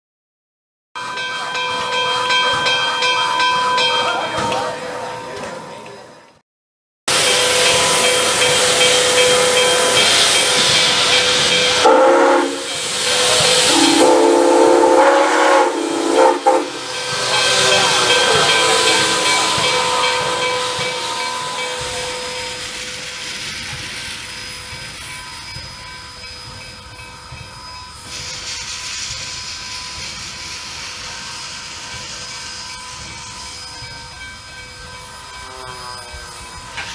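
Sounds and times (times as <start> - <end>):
steam whistle: 7.1 - 22.8, 35.0 - 36.9
steam venting hiss: 7.1 - 36.9.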